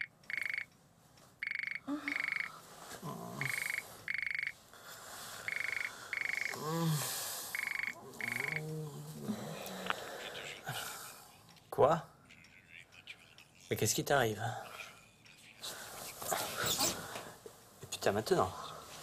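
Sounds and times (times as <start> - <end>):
person groaning: 3.0 - 3.6, 6.5 - 7.3, 8.0 - 11.0.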